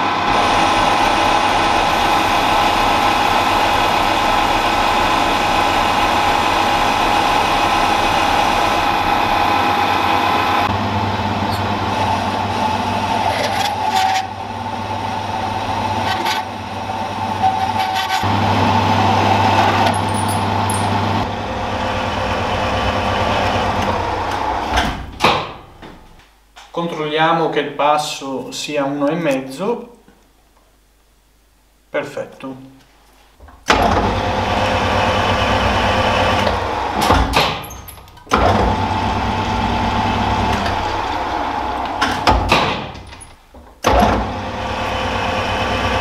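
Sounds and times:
metal lathe cutting hum: 0.0s - 24.8s, 33.8s - 37.2s, 38.3s - 42.4s, 44.2s - 46.0s.

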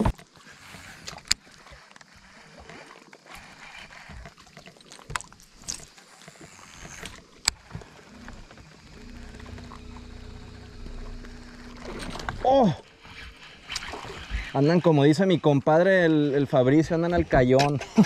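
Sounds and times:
trolling motor humming: 0.0s - 18.0s
fishing reel clicks: 0.5s - 14.8s.

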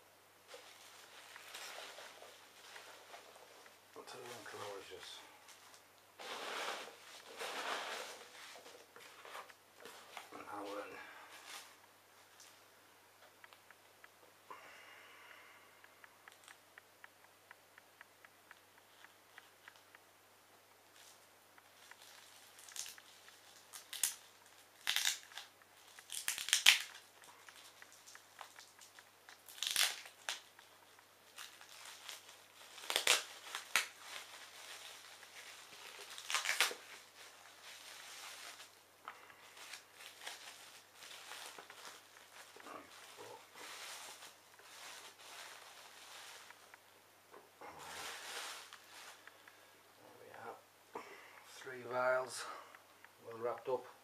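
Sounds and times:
plastic bag crinkling: 20.9s - 46.7s, 47.8s - 49.5s.

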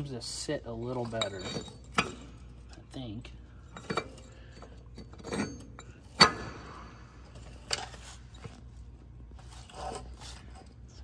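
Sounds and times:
metal parts clinking and knocking: 0.8s - 8.6s.

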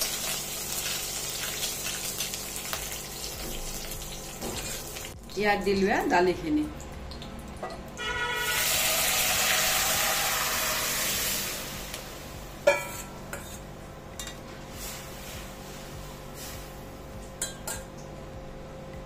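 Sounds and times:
food sizzling in hot oil: 0.0s - 5.2s, 8.1s - 18.0s
utensil clanking against pan: 12.6s - 13.6s.

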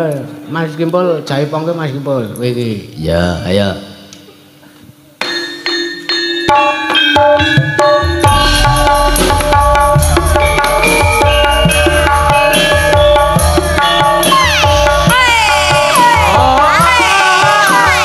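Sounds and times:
driving drum pattern: 6.5s - 18.0s
person singing: 14.2s - 18.0s.

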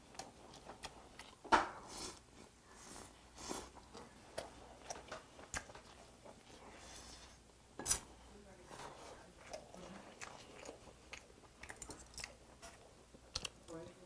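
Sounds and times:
chewing: 0.0s - 2.3s, 3.4s - 7.4s, 9.3s - 13.9s.

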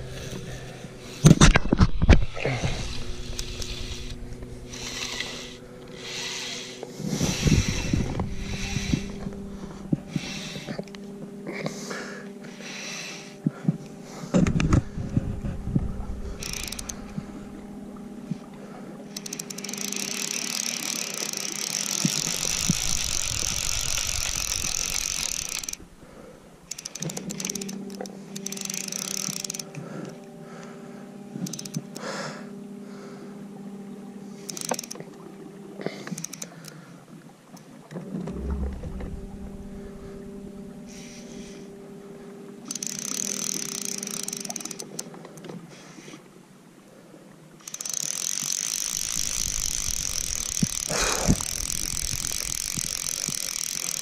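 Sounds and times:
fishing reel drag clicking: 0.0s - 11.1s, 15.9s - 30.3s, 31.3s - 32.4s, 34.4s - 35.2s, 35.8s - 36.8s, 37.5s - 41.7s, 42.6s - 45.5s, 47.6s - 54.0s
electric motor hum: 0.0s - 36.7s, 37.9s - 45.2s, 47.6s - 54.0s.

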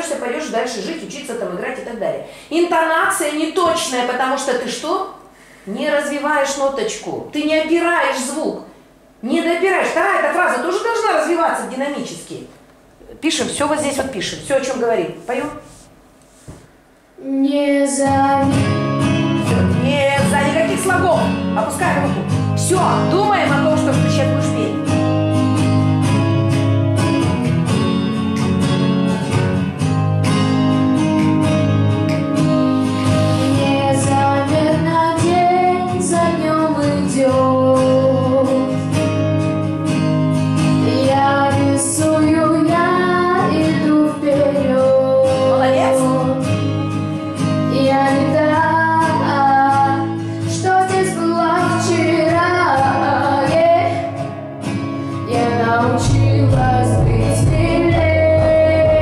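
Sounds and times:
girl singing into a microphone: 17.2s - 25.0s, 32.7s - 39.3s, 40.6s - 54.4s, 55.1s - 59.0s
backing track with guitar and beat: 18.1s - 59.0s.

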